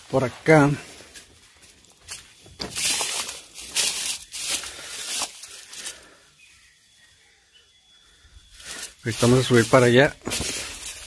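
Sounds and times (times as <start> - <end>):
footsteps crunching dry leaves: 0.0 - 6.2, 8.5 - 11.0.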